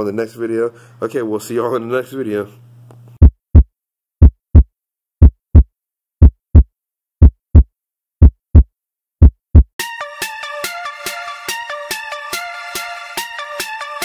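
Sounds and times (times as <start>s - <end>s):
heartbeat thumps: 3.2s - 9.8s
electronic music: 9.8s - 14.0s.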